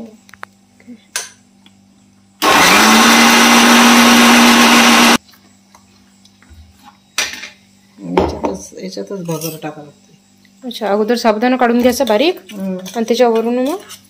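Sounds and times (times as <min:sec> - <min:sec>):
mixer grinder motor whining: 0:02.4 - 0:05.2.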